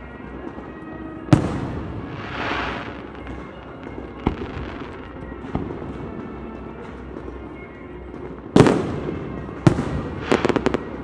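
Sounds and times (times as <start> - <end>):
firework bangs: 1.3 - 6.4, 8.5 - 11.0
firework crackling hiss: 1.4 - 5.2, 10.0 - 11.0.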